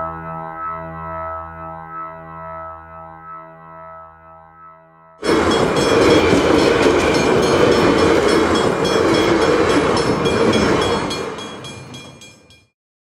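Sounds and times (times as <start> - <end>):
loud dense clattering: 5.2 - 12.2.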